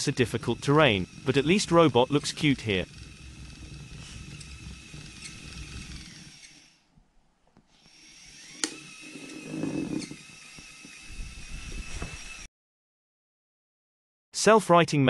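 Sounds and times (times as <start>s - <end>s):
robot motors whining: 0.0s - 6.8s, 7.8s - 12.5s.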